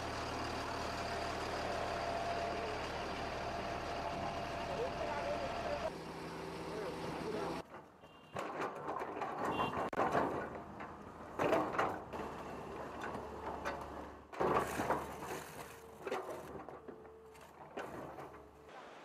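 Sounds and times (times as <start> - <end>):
excavator engine humming: 0.0 - 8.2, 10.7 - 19.0
clanks and scrapes of roadwork: 6.8 - 19.0.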